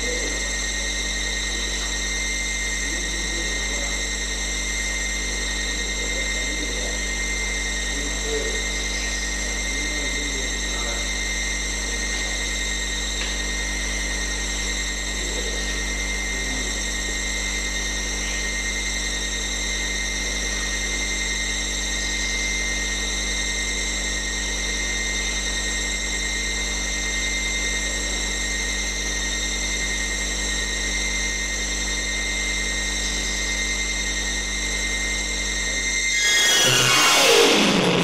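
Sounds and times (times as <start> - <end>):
electrical hum: 0.0 - 38.0
high thin whining tones: 36.0 - 38.0.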